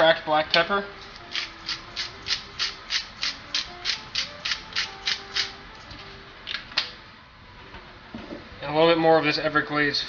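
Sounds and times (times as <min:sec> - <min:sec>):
pepper grinder grinding: 0:01.1 - 0:05.9.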